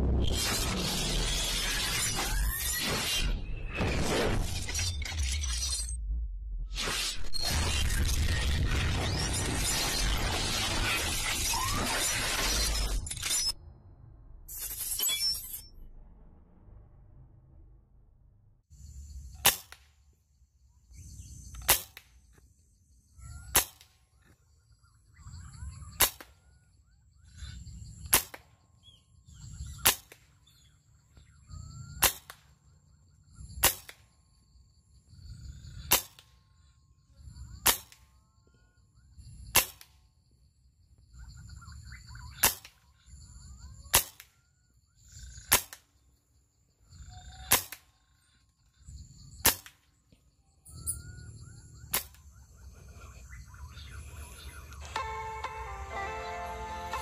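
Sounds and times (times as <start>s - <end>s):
low rumble: 5.9s - 6.8s, 13.6s - 14.5s, 15.6s - 18.7s.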